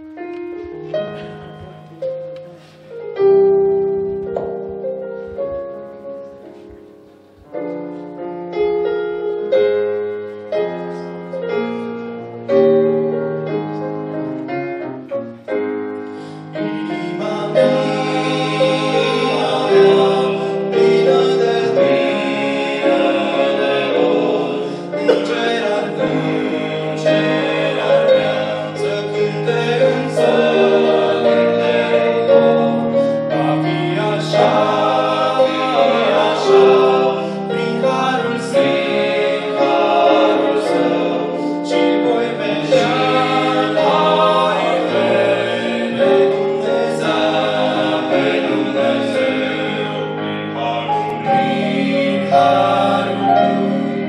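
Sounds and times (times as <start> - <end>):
piano notes: 0.0 - 54.0
male vocal group singing: 16.5 - 54.0.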